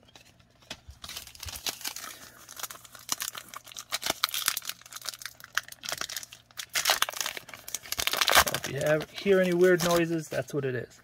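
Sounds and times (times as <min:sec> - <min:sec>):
foil wrappers crinkling: 0:00.1 - 0:10.6
cards rustling and clicking: 0:06.6 - 0:10.5.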